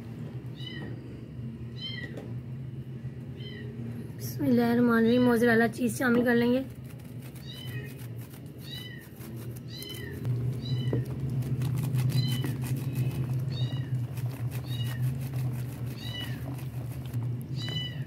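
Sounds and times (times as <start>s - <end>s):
steady low hum: 0.0s - 18.0s
cat mewing: 7.4s - 11.0s, 13.4s - 15.2s, 15.8s - 16.7s.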